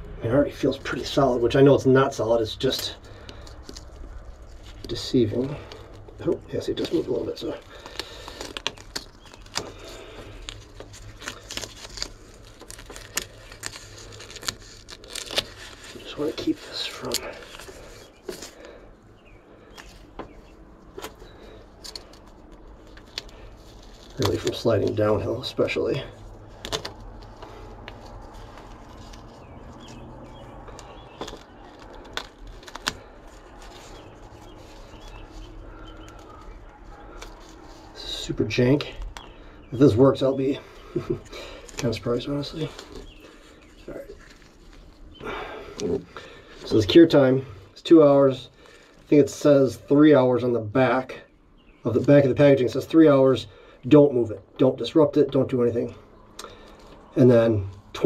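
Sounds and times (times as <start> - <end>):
low steady hum: 0.0 - 58.0
duct tape crinkling: 0.5 - 51.1, 51.8 - 53.6, 56.3 - 58.0.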